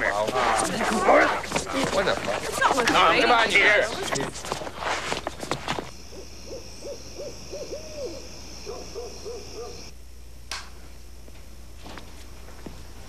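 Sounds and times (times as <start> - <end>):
night insects chorus: 0.0 - 13.0
owl hooting: 6.0 - 9.9.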